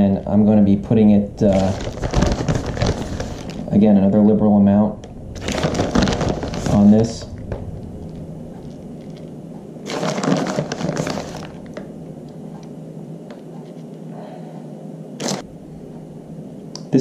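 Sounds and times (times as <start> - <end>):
plastic bag crinkling: 1.4 - 3.8, 5.4 - 12.0, 15.2 - 15.5.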